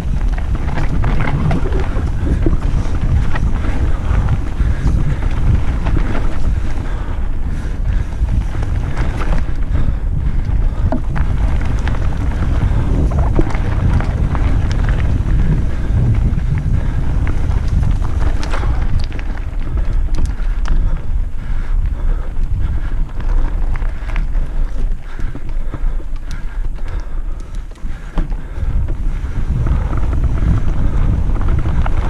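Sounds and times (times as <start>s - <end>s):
tyres rattling over gravel: 0.0s - 20.6s
wind buffeting microphone: 0.0s - 32.0s.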